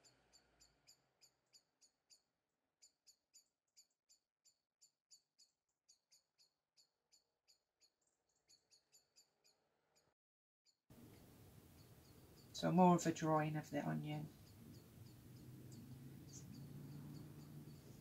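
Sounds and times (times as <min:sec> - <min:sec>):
faint high-pitched chirps: 0:11.0 - 0:18.0.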